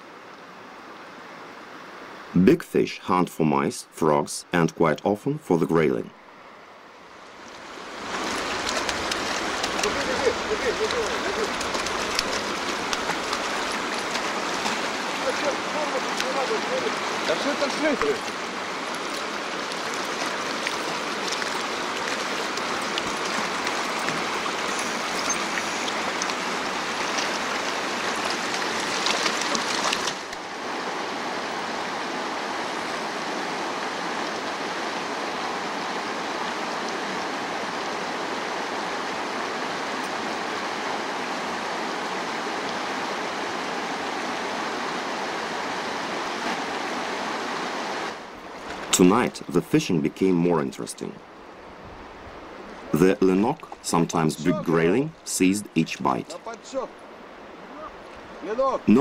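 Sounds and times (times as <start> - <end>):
river rushing over rocks: 7.0 - 49.4.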